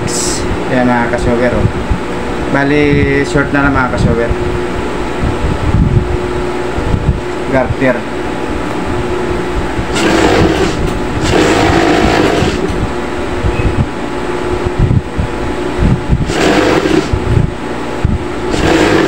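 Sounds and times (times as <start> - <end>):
steady hum: 0.0 - 19.0
sewing machine stitching: 9.9 - 12.8, 16.2 - 17.2, 18.5 - 19.0.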